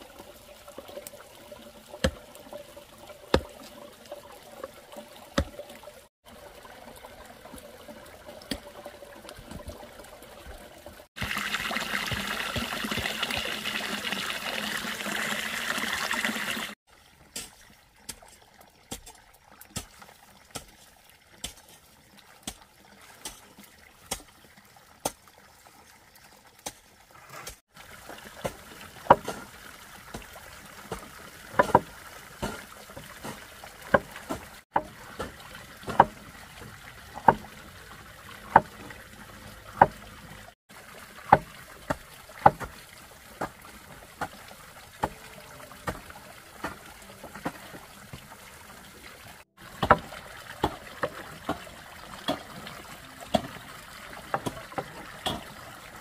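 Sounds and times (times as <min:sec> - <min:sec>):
water pouring into basin: 0:00.0 - 0:26.6.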